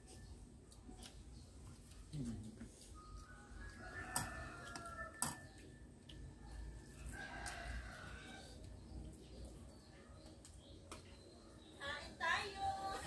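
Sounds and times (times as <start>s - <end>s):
faint rooster crowing: 2.9s - 8.8s.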